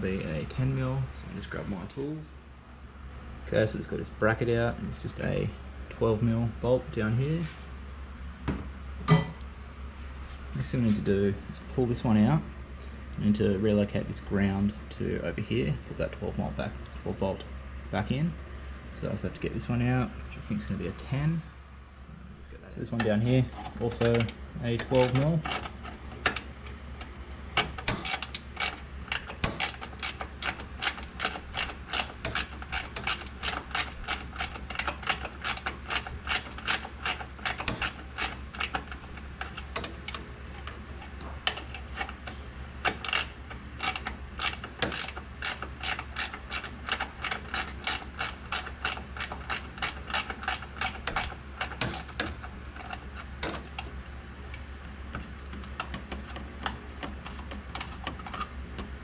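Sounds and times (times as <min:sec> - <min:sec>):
ratchet wrench clicking: 0:27.6 - 0:40.2, 0:42.8 - 0:52.4.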